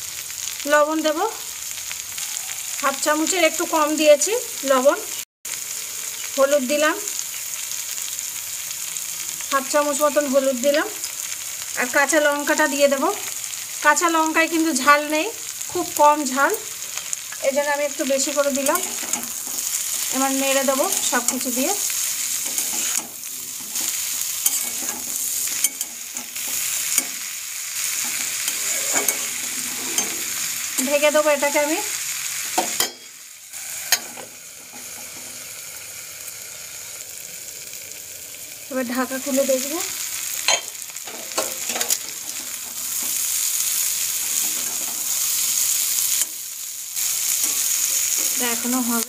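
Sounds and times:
vegetables sizzling in oil: 0:00.0 - 0:49.0
metal clinks against pan: 0:40.5 - 0:42.0.

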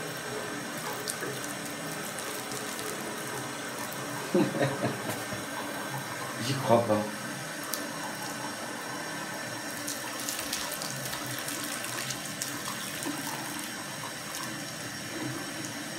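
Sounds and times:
tap running into washbasin: 0:00.0 - 0:15.9
water splashing on cat: 0:00.8 - 0:05.7, 0:09.7 - 0:15.7.

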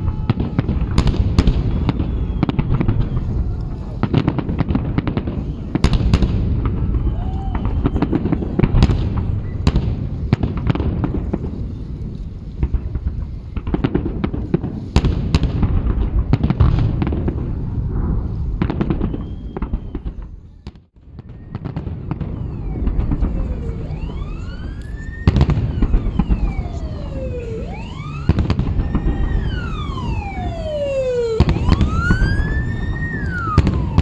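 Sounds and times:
fireworks bangs: 0:00.0 - 0:34.0
low rumble of reports: 0:22.3 - 0:34.0.

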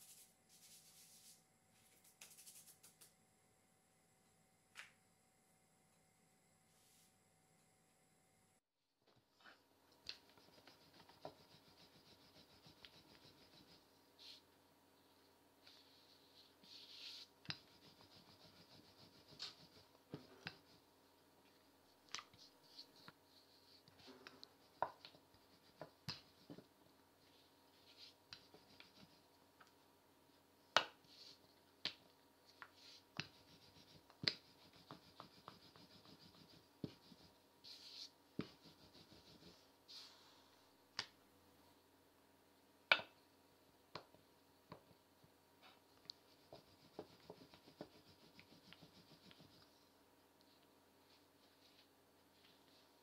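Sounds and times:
rolling pin rubbing on dough: 0:10.2 - 0:14.4, 0:16.0 - 0:20.9, 0:27.8 - 0:29.2, 0:32.7 - 0:40.1, 0:46.2 - 0:49.7.

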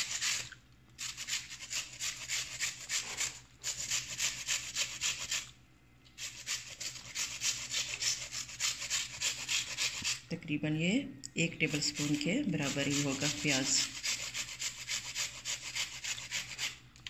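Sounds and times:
onion rasping on a hand grater: 0:00.0 - 0:05.4, 0:06.2 - 0:10.2, 0:11.6 - 0:16.8.

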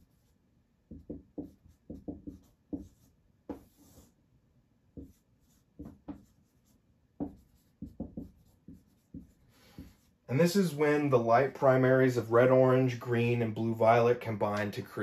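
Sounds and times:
pen strokes scratching: 0:00.0 - 0:04.2, 0:04.9 - 0:10.3.

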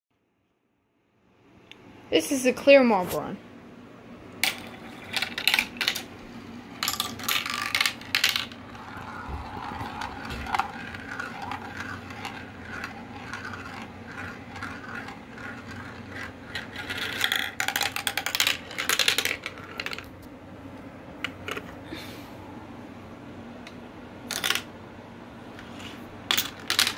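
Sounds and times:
marble clattering through tubes: 0:04.4 - 0:20.2, 0:24.3 - 0:24.7, 0:26.3 - 0:26.9
marble rolling whirr in funnel: 0:04.4 - 0:20.3.

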